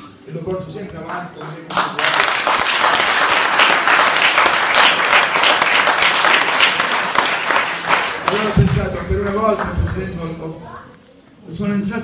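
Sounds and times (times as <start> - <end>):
audience applauding: 1.5 - 10.1.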